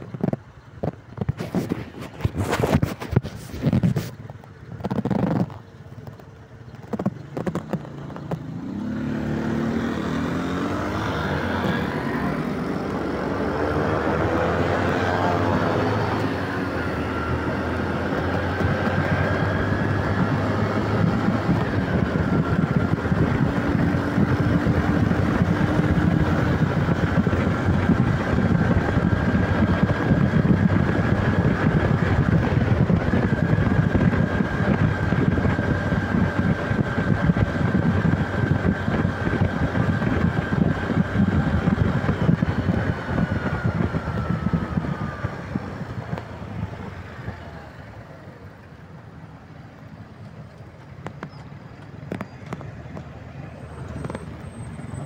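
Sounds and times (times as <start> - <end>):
motorcycle engine pulling away: 4.8 - 48.8.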